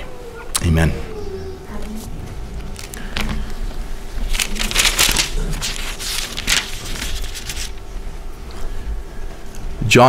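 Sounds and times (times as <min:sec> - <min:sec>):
paper pages rustling: 0:02.6 - 0:03.6, 0:04.2 - 0:07.9.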